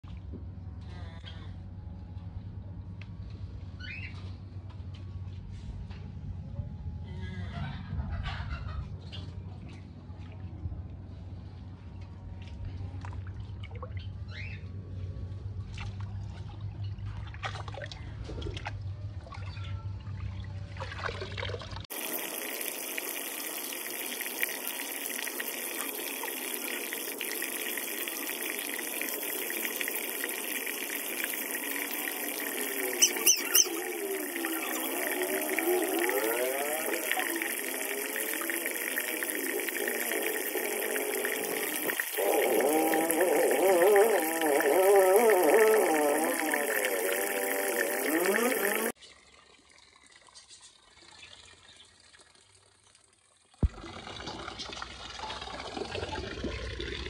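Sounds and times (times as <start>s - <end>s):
water splashing into pond: 15.6s - 19.6s, 20.3s - 57.0s.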